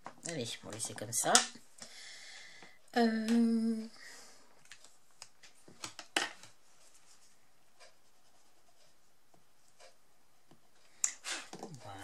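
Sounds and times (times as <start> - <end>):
woman humming: 2.9 - 4.0.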